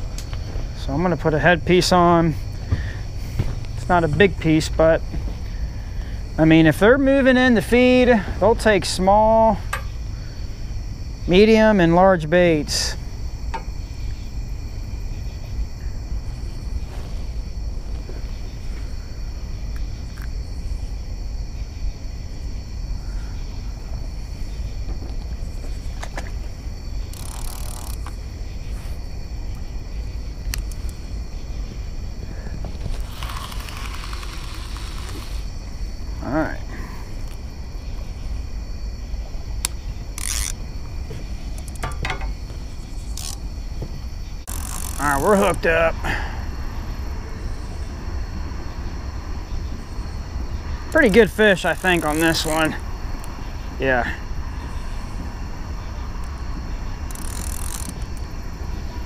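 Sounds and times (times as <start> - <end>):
night insects trilling: 0.0 - 59.0
fishing reel clicking: 27.1 - 28.1, 33.0 - 35.5, 40.2 - 40.6, 43.1 - 43.4, 44.5 - 45.2, 51.8 - 52.6, 57.1 - 58.1
steady low rumble: 35.5 - 52.0.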